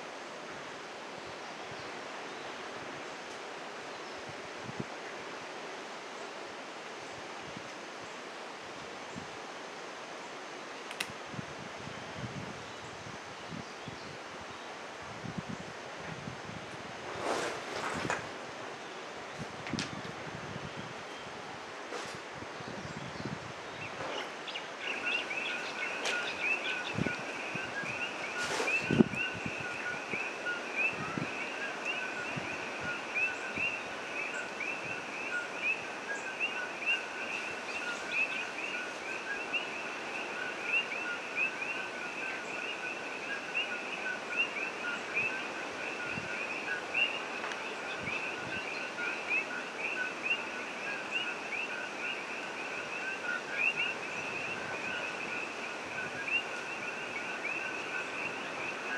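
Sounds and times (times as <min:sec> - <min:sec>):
even hiss: 0:23.5 - 0:58.9.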